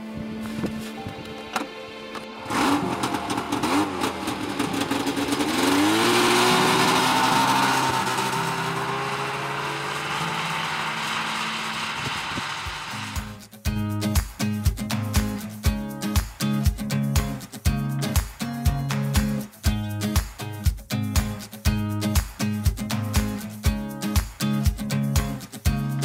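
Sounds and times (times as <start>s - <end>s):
snowmobile engine revving: 2.4s - 13.4s.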